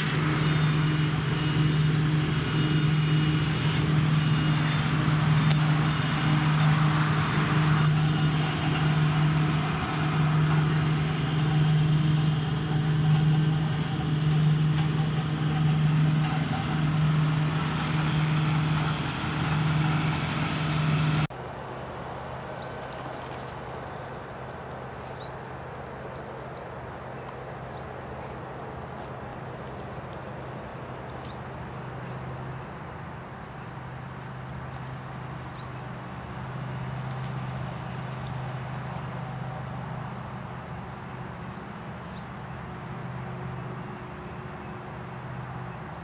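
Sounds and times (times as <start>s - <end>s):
combine harvester running: 0.0s - 21.3s.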